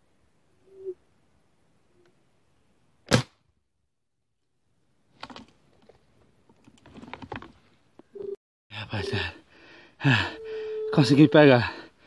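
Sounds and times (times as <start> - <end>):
air rifle shot: 3.1 - 3.4
rustles and clicks: 5.1 - 8.1.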